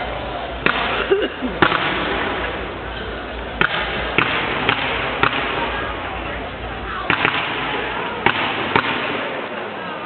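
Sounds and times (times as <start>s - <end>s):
steady background noise: 0.0s - 10.0s
fireworks bangs: 3.5s - 9.8s.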